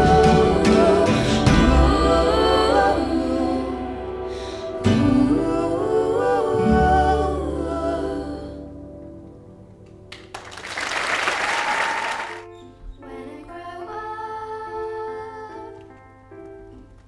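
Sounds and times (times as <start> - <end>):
audience applauding: 10.1 - 12.5.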